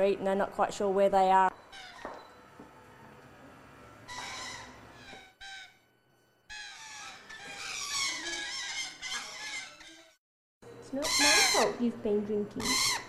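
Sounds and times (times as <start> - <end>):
parrots squawking and chattering: 1.6 - 2.2, 3.9 - 5.9, 6.5 - 10.2, 10.9 - 11.9, 12.5 - 13.0.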